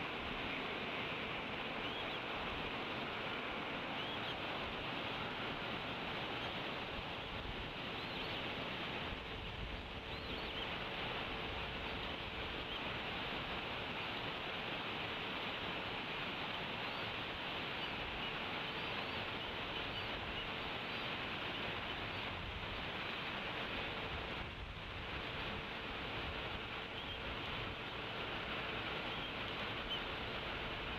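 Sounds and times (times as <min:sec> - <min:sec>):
background hiss: 0:00.0 - 0:30.9
faint hum: 0:00.0 - 0:30.9.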